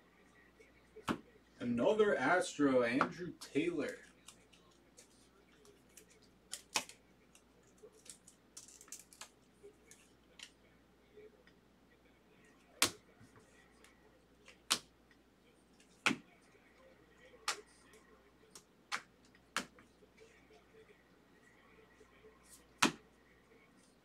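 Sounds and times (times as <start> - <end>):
cards rustling: 2.9 - 10.6.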